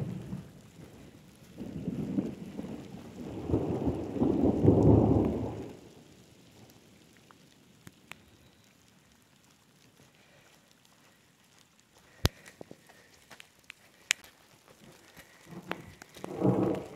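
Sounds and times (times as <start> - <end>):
rolling thunder: 0.0 - 6.1, 15.5 - 16.9
faint rain falling on water: 0.0 - 16.9.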